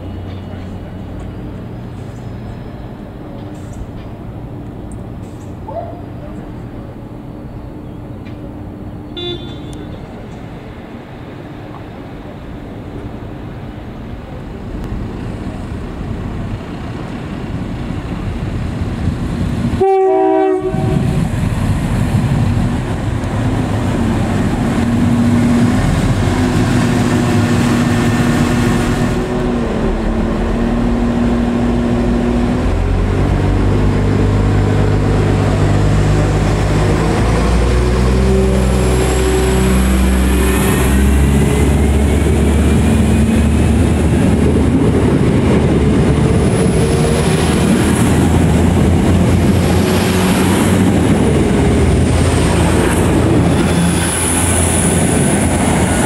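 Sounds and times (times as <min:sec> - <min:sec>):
diesel train engines droning: 0:00.0 - 0:56.0
distant train rumbling: 0:00.0 - 0:56.0
train horn blast: 0:09.1 - 0:10.2, 0:19.8 - 0:21.2.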